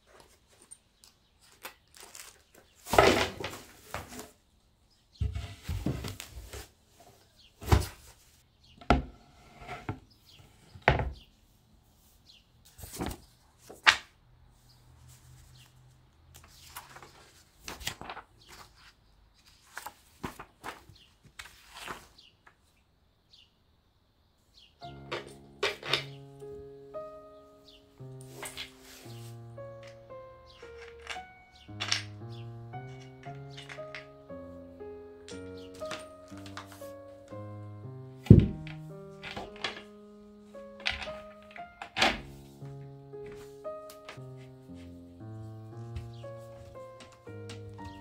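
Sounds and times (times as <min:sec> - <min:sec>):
rustling sliding noise: 0:28.2 - 0:30.0
wooden panels knocking: 0:38.3 - 0:39.9.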